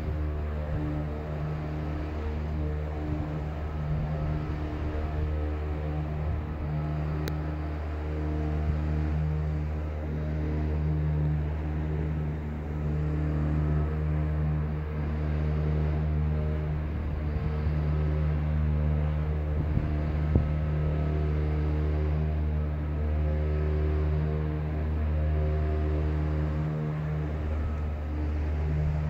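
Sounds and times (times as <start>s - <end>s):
low droning hum: 0.0s - 29.0s.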